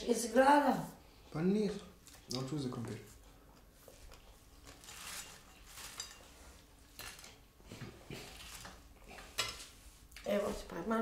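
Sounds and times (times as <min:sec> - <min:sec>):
plates and cutlery clinking: 0:04.1 - 0:09.8.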